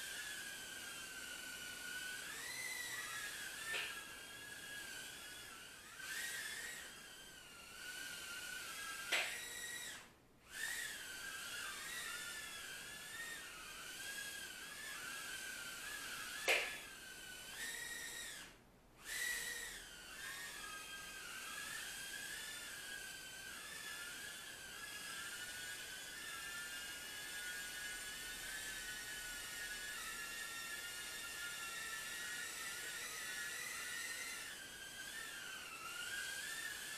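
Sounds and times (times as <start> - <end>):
quadcopter motors whining: 0.0 - 36.9.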